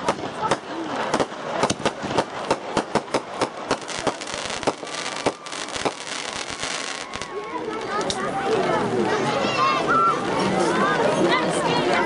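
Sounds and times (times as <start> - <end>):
fireworks bangs and crackling pops: 0.0 - 9.2.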